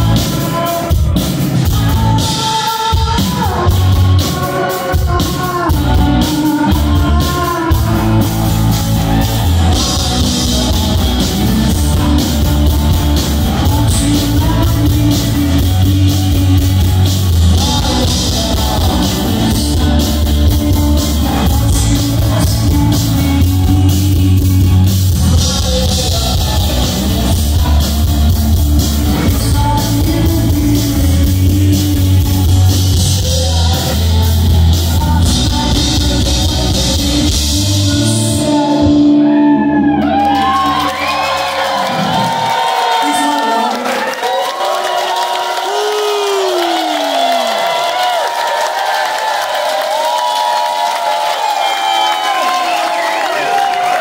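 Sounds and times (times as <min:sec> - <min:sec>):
bass guitar: 0:00.0 - 0:43.1
electric guitar: 0:00.0 - 0:44.1
drums: 0:00.0 - 0:54.0.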